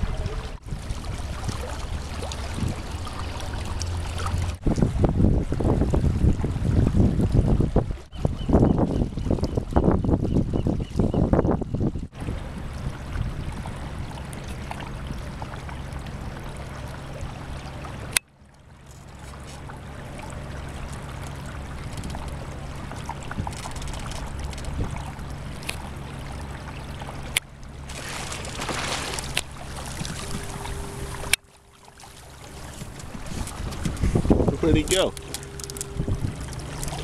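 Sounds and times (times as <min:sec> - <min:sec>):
water rushing along hull: 0:00.0 - 0:37.0
electric trolling motor humming: 0:19.8 - 0:37.0.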